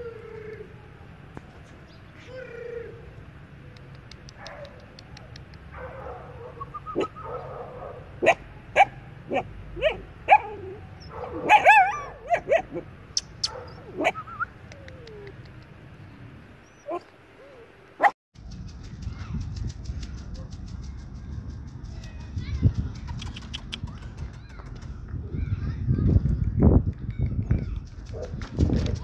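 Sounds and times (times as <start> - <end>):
low background hum: 0.0 - 28.4
dog barking and yelping: 4.3 - 15.4, 16.6 - 17.1.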